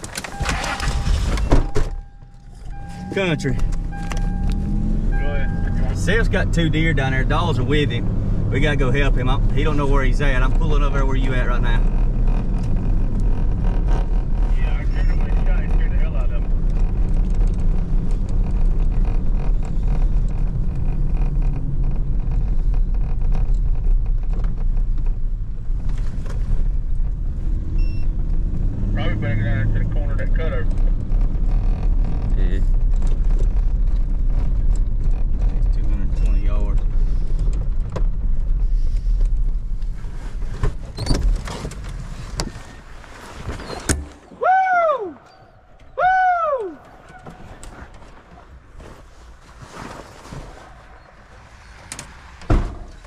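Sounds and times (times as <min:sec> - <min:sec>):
truck engine running: 0:00.0 - 0:24.1
truck engine rumble: 0:00.0 - 0:53.0
knocks and rattles: 0:30.6 - 0:38.6.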